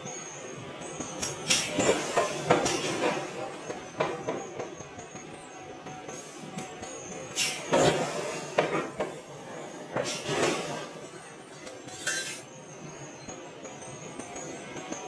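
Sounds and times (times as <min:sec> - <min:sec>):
flames flaring with hiss: 0:10.0 - 0:11.0.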